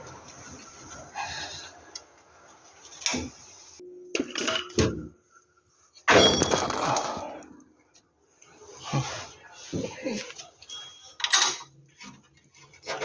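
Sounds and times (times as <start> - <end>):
metallic ring: 10.7 - 11.7.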